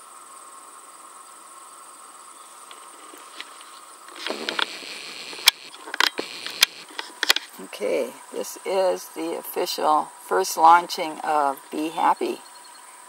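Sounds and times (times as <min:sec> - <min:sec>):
constant high buzz: 0:00.0 - 0:13.0
faint outdoor hiss: 0:00.0 - 0:13.0
camera handling rustles and clicks: 0:02.7 - 0:07.6.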